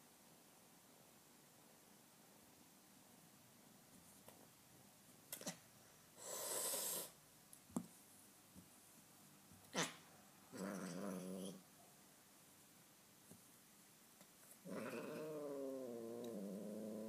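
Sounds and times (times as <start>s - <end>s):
cat hissing: 6.2s - 7.2s
cat growling: 9.7s - 11.6s, 14.6s - 17.0s.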